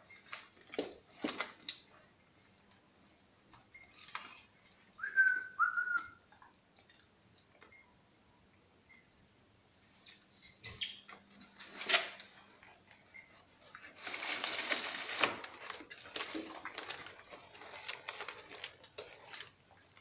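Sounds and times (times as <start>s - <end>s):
paper bedding rustling: 13.6s - 19.4s.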